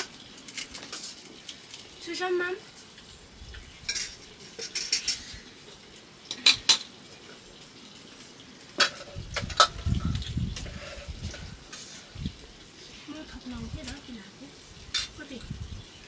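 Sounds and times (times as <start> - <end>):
dishes and utensils clinking: 3.8 - 5.4, 6.3 - 6.9, 8.8 - 12.0, 14.9 - 15.2.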